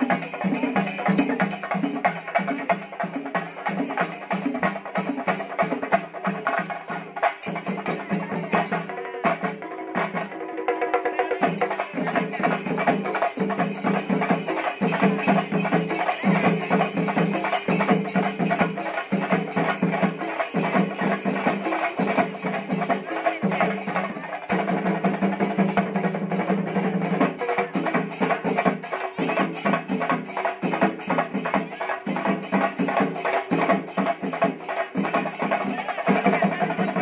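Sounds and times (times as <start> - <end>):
drums beaten rapidly with sticks: 0.0 - 37.0
hand cymbals ringing: 11.4 - 37.0.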